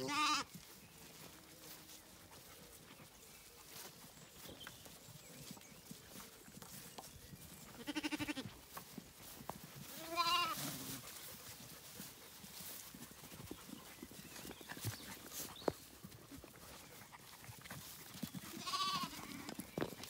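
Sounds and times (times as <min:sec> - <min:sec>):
lambs bleating: 0:00.0 - 0:00.5, 0:07.8 - 0:08.5, 0:09.9 - 0:11.0, 0:18.5 - 0:19.5.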